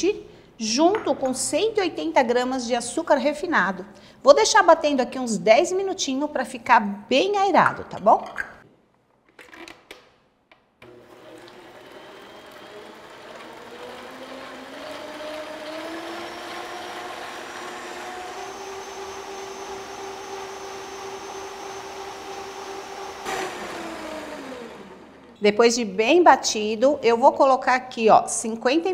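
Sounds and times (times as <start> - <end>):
mixer clicks: 10.8 - 15.1
stand mixer motor whining: 10.8 - 25.4.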